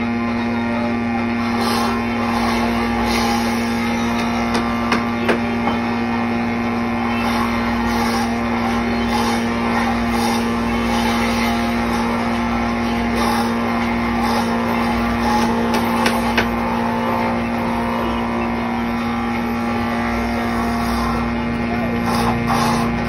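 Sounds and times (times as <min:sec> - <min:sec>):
machine motor humming: 0:00.0 - 0:23.0.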